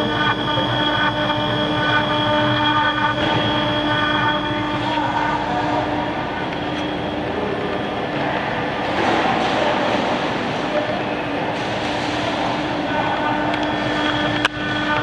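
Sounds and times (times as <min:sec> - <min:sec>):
router spindle whine: 0:00.0 - 0:09.0, 0:12.4 - 0:15.0.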